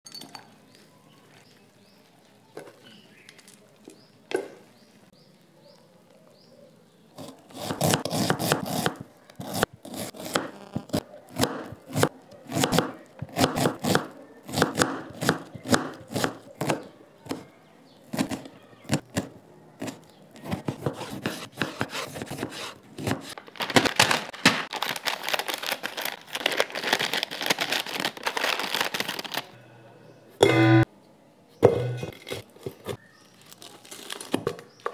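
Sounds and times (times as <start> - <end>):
knife chopping on cutting board: 18.1 - 23.3
plastic snack packet tearing: 23.2 - 29.6, 33.2 - 34.8.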